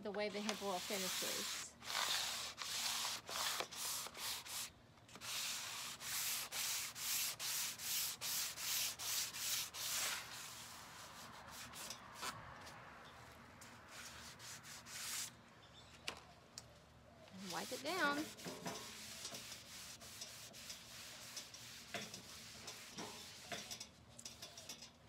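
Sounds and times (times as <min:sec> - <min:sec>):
sanding block rasping on metal: 0:00.4 - 0:12.0, 0:13.9 - 0:15.3, 0:17.4 - 0:23.9.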